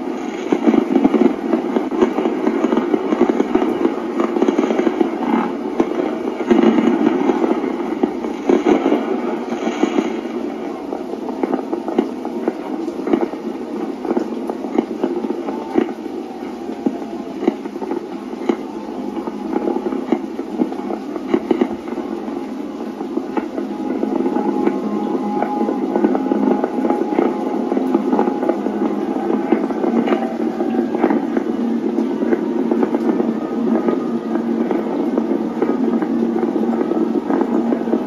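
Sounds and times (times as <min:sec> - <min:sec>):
fireworks bursting and crackling: 0:00.0 - 0:38.0.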